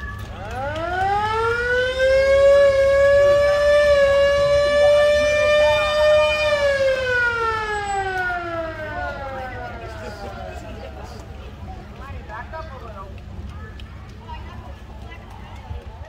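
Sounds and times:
police siren wailing: 0:00.0 - 0:11.1.

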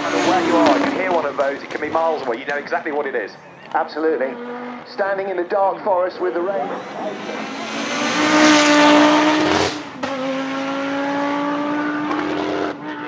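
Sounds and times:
rally car engine at full throttle: 0:00.0 - 0:13.0.

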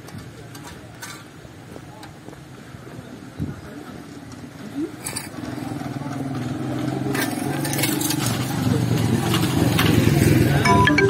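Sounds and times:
motorbike engine approaching: 0:04.0 - 0:10.6.

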